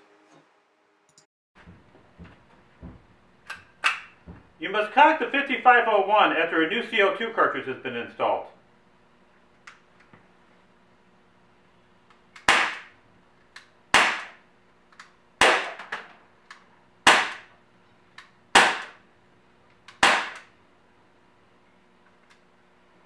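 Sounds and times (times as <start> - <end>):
bb pistol shots: 12.4 - 13.0, 13.9 - 14.4, 15.4 - 16.0, 17.0 - 17.5, 18.5 - 19.0, 19.9 - 20.5.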